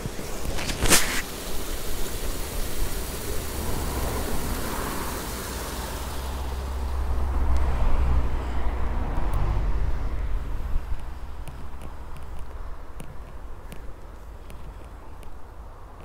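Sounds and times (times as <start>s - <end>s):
water splashing over weir: 0.0s - 16.0s
low rumble: 3.6s - 12.8s.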